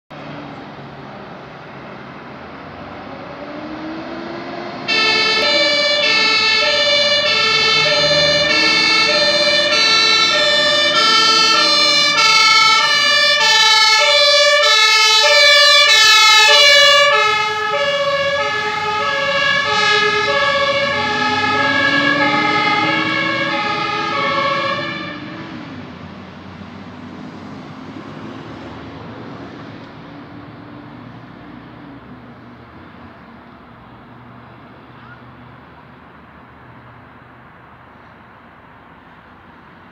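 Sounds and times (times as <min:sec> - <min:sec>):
road noise: 0:00.1 - 0:39.9
truck engine and tyre noise: 0:00.1 - 0:39.9
fire engine two-tone siren: 0:02.9 - 0:25.8.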